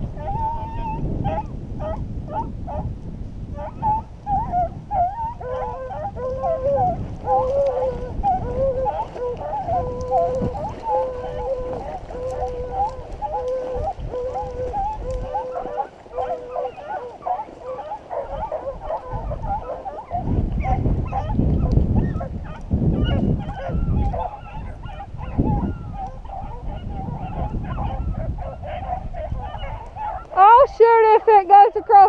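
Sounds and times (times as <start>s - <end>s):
low rumbling on microphone: 0.0s - 32.0s
hounds baying in chorus: 0.1s - 32.0s.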